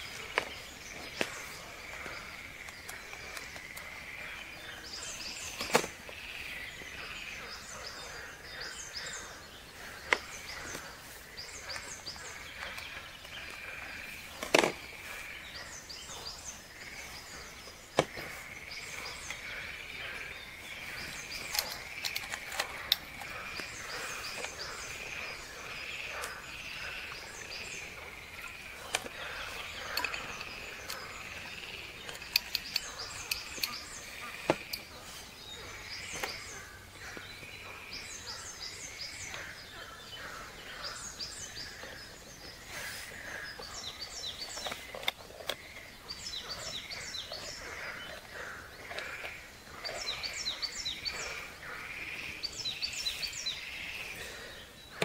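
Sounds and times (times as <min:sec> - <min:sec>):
birds chirping: 0:00.0 - 0:55.0.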